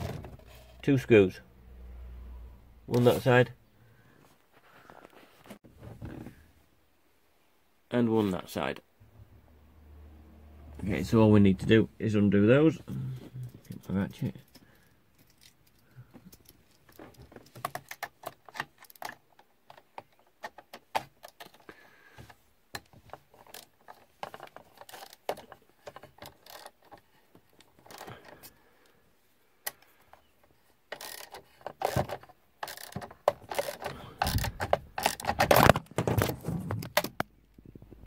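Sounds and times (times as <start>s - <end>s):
tool rattling in socket: 23.4s - 27.0s, 30.9s - 37.2s
ratchet clicking: 30.9s - 32.0s, 32.6s - 35.4s.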